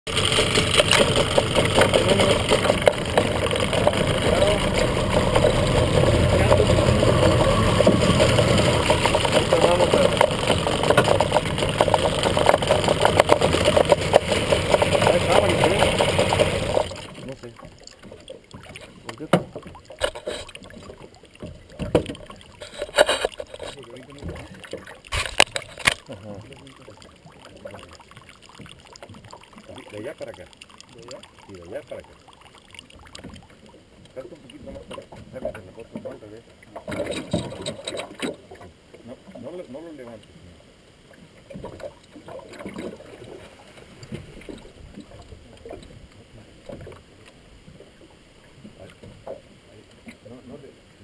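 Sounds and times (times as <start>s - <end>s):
sharp splashes: 0.1s - 33.7s
water sloshing against metal boat: 0.1s - 40.3s, 41.0s - 51.0s
small knocks on boat: 18.0s - 26.0s.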